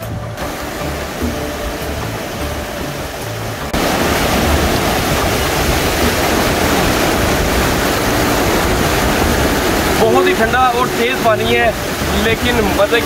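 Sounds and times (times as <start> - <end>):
background music: 0.0 - 13.0
river water rushing: 0.0 - 13.0.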